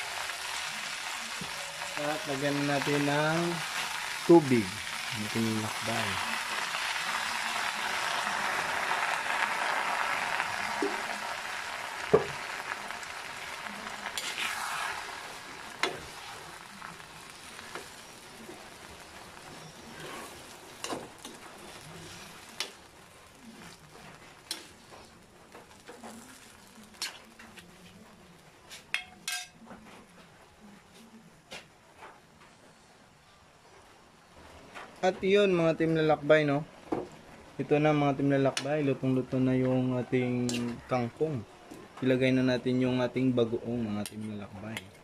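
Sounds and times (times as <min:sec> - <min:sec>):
water sizzling in hot wok: 0:00.0 - 0:28.0, 0:40.4 - 0:41.0.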